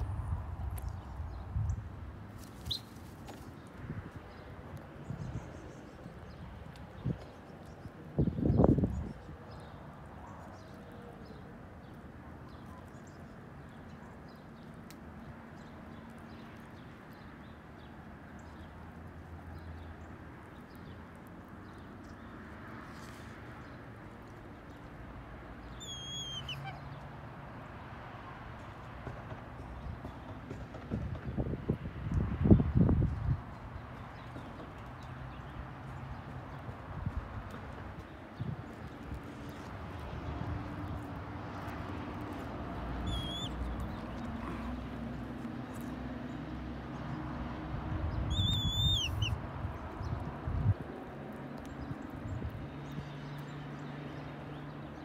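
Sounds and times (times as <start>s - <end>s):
wind buffeting microphone: 6.3s - 9.4s, 29.6s - 34.8s, 36.1s - 41.3s, 47.7s - 51.0s, 51.8s - 53.0s
whistled bird call: 25.8s - 26.8s, 43.0s - 43.6s, 48.3s - 49.4s.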